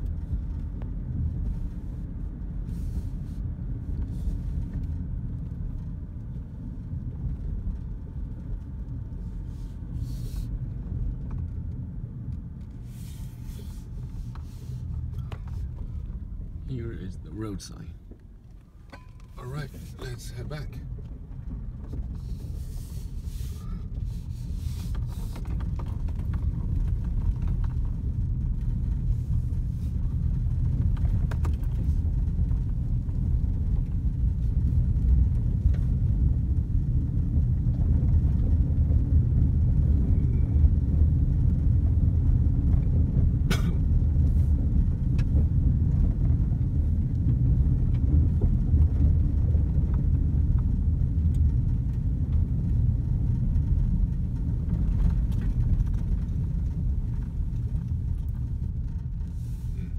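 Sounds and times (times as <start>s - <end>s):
car rumbling on gravel road: 0.0s - 59.9s.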